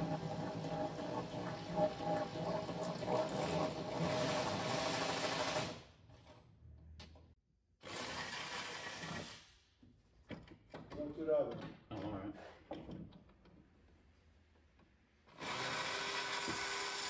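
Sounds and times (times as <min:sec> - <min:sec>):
power tool motor whirring: 0:15.4 - 0:17.0.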